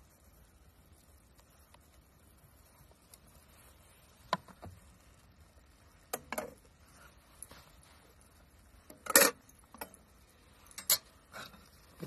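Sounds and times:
metal cookware clinking: 0:10.7 - 0:11.6.

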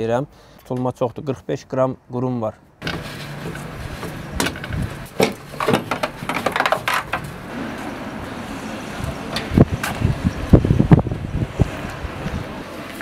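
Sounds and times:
metallic knocks and clanks of tools: 0:02.8 - 0:07.3.

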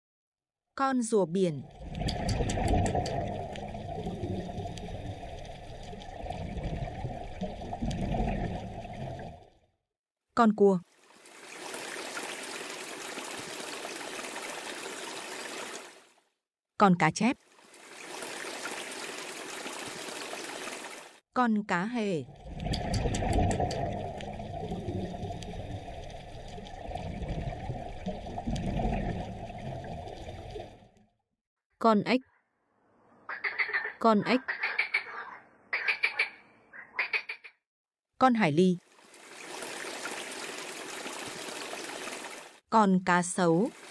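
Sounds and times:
muffled underwater rushing: 0:01.6 - 0:09.6, 0:22.2 - 0:30.9.

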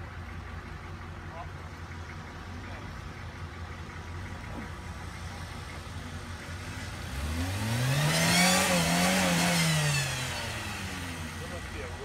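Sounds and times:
engine revving under load: 0:06.4 - 0:12.0.

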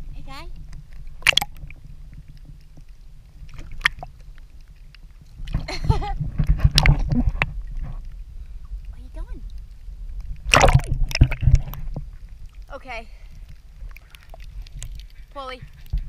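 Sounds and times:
low steady rumble: 0:00.0 - 0:16.0
sea water sloshing and lapping: 0:00.0 - 0:16.0.

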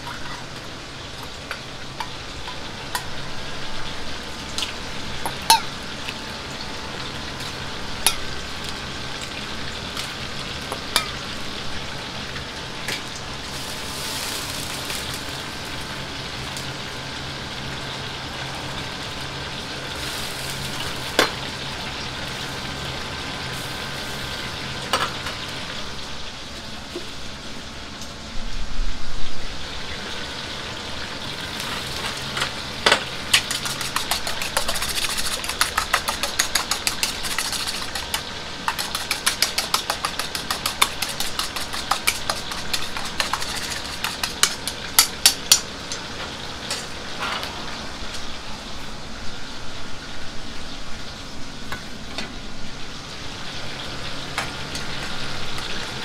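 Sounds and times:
food sizzling in a wok: 0:00.0 - 0:56.0
gas burner roaring: 0:00.0 - 0:56.0
chopsticks beating eggs in bowl: 0:33.2 - 0:45.6.

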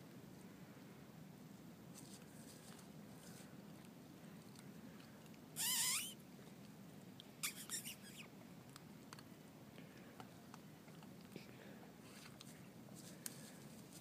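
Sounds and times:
puppy yelping: 0:05.6 - 0:06.2, 0:07.4 - 0:08.3
rough burst of puppy sound: 0:05.6 - 0:06.2, 0:07.4 - 0:08.3.

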